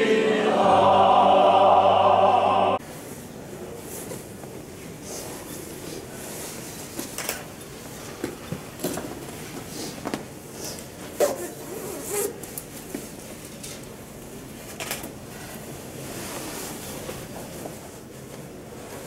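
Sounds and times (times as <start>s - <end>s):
soft rustles: 15.3s - 19.0s.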